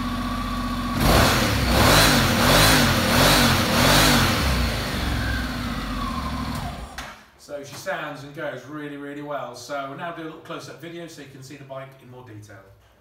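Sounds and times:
motorcycle engine idling and revving: 0.0 - 7.0.

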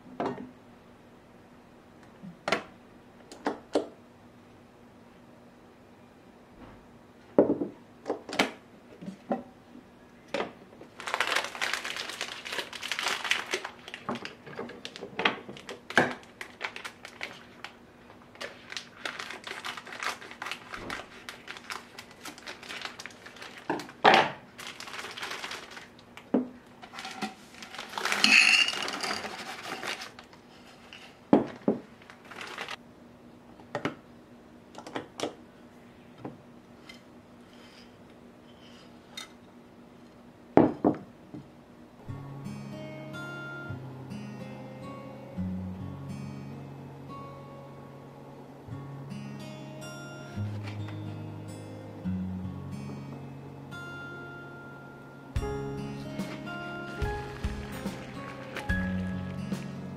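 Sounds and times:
plastic packaging crinkling: 10.8 - 32.8, 56.0 - 59.8.

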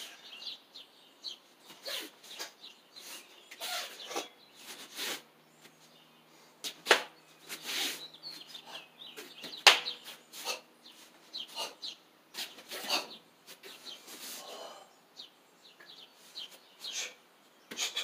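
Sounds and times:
sharp slaps: 6.6 - 7.2, 9.4 - 10.1.

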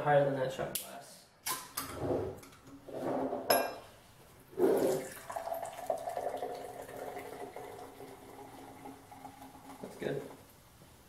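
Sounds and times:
drink pouring and fizzing: 4.5 - 10.5.

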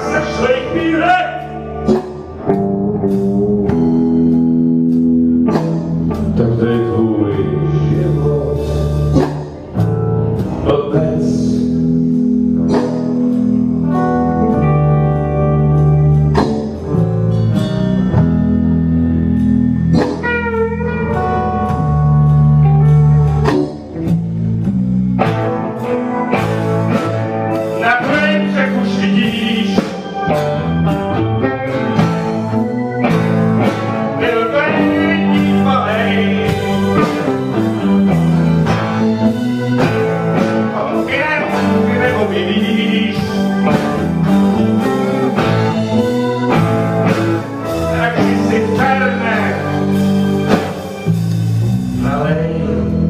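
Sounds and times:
live blues band playing: 0.0 - 53.0.

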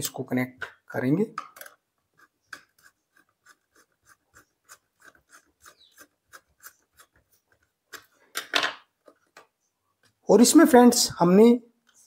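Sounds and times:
screwdriver scraping and clicking: 1.4 - 8.2.

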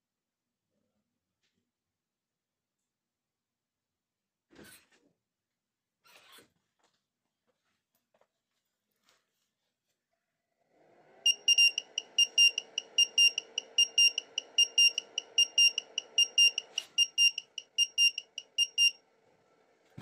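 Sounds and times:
faint steady whir: 10.7 - 20.0
charger buzzer beeping rapidly: 11.3 - 19.0.

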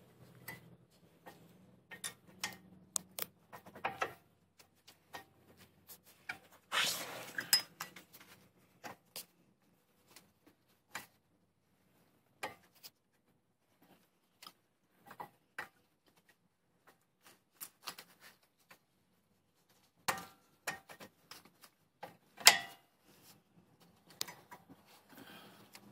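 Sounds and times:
scraping and rustling: 5.6 - 8.4.

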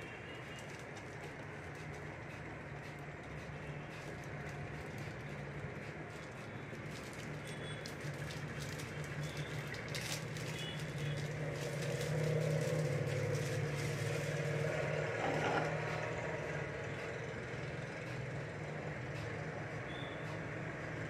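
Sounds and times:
plastic wrapper crinkling: 6.9 - 15.0.

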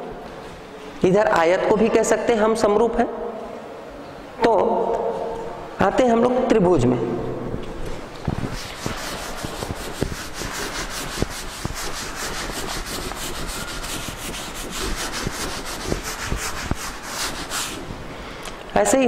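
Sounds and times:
rubbing strokes on a blackboard: 8.4 - 18.0.

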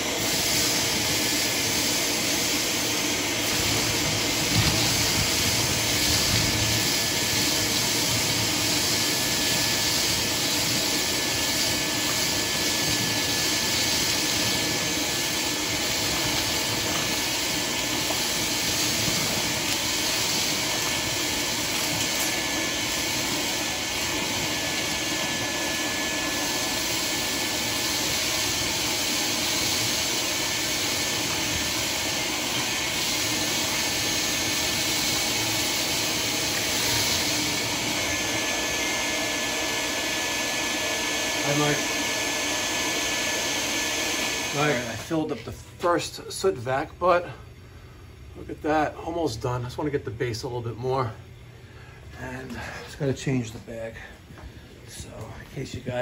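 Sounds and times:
vacuum sucking debris: 0.0 - 47.3.

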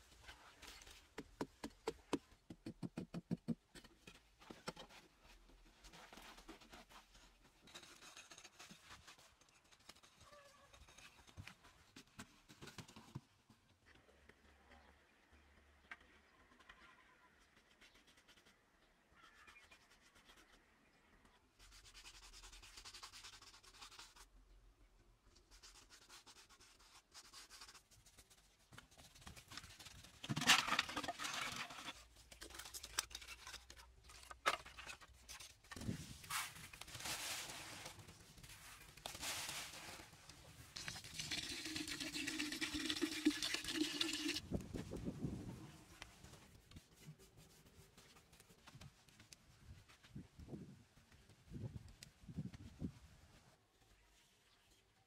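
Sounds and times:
hand scraping and rubbing: 32.1 - 41.0
water pouring into pot: 40.8 - 44.4.

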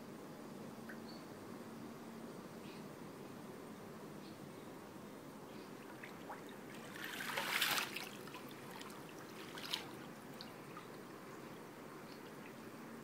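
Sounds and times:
pool water swishing and lapping: 5.6 - 13.0.

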